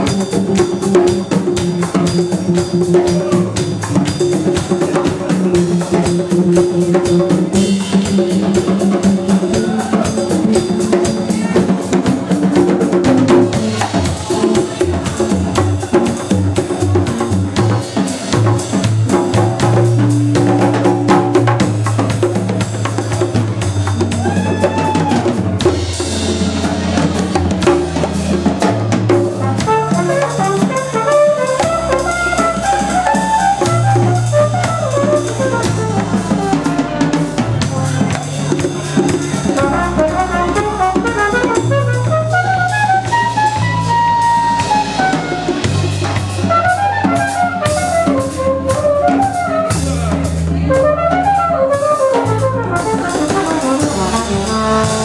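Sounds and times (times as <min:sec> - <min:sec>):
samba-jazz band playing: 0:00.0 - 0:55.0
soprano saxophone solo: 0:39.6 - 0:45.6, 0:50.6 - 0:55.0.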